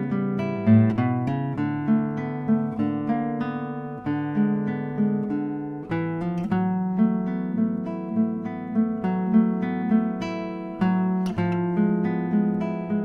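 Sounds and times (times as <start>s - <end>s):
acoustic guitar playing: 0.0s - 13.0s.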